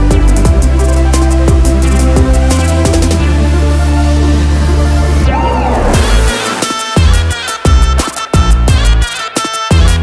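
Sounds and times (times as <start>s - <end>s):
deep sustained bass: 0.0s - 6.4s.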